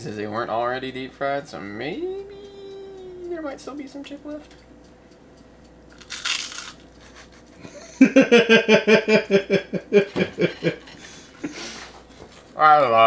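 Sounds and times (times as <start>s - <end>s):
crunch of biting a chip: 6.0s - 7.2s
man laughing hard: 7.0s - 11.8s.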